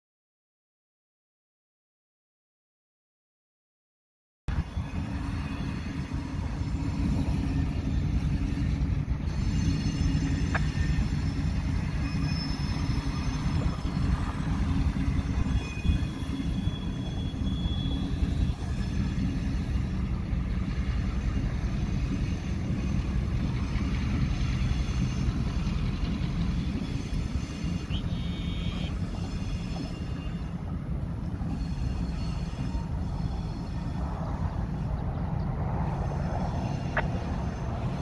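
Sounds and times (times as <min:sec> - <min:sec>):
freight train rumbling: 0:04.5 - 0:38.0
faint wheel squeals: 0:04.7 - 0:20.2, 0:21.9 - 0:34.0.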